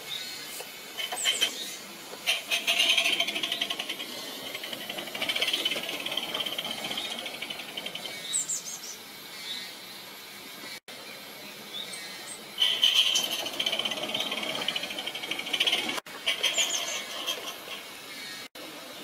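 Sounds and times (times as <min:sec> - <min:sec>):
model steam locomotive exhaust beating: 0:00.7 - 0:09.0, 0:12.4 - 0:18.0.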